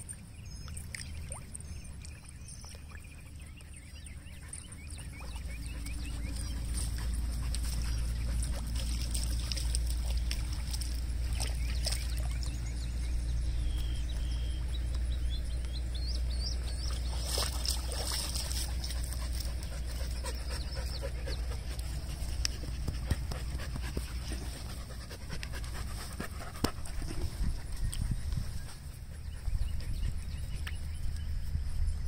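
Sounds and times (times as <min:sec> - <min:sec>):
dog panting: 0:04.2 - 0:09.9, 0:18.2 - 0:30.6.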